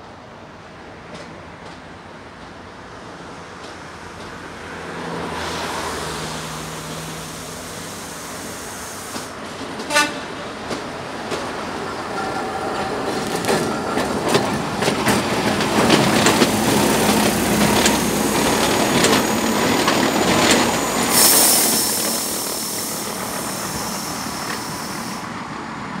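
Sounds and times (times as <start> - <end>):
railcar wheels clicking over rails: 1.0 - 25.4
brief hiss: 6.8 - 9.4, 21.1 - 25.4
high wheel squeal: 16.1 - 25.4.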